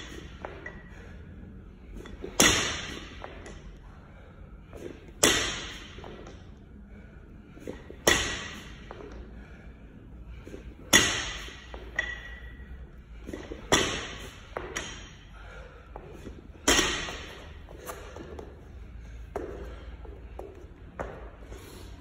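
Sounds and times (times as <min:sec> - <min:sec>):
barbell thudding on floor: 0:16.6 - 0:18.4.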